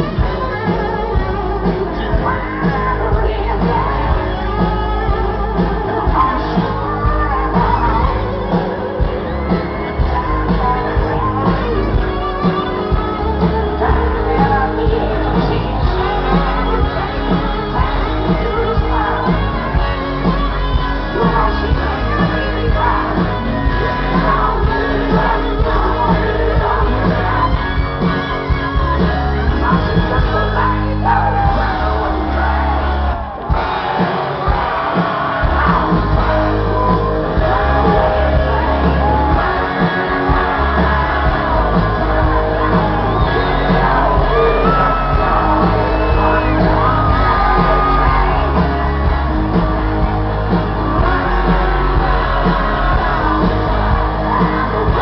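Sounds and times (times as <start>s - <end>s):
audience singing and shouting: 0.0s - 55.0s
live rock music: 0.0s - 55.0s.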